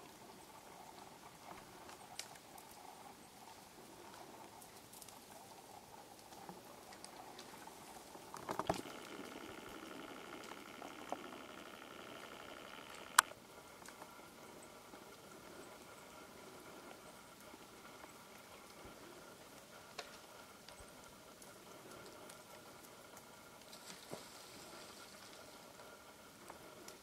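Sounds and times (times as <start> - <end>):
small clicks: 8.3 - 14.1
camcorder zoom motor whine: 8.6 - 13.4.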